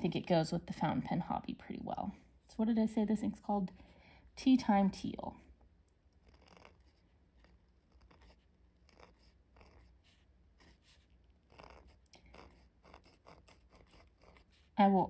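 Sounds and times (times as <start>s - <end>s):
pen nib scratching on paper: 5.9s - 15.0s.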